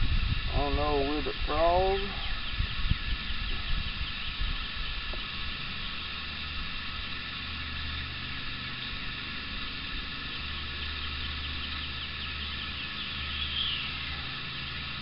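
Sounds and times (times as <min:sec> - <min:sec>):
low rumble: 0:00.0 - 0:15.0
open-air hiss: 0:00.0 - 0:15.0
bird chirping: 0:00.6 - 0:05.1, 0:10.2 - 0:15.0.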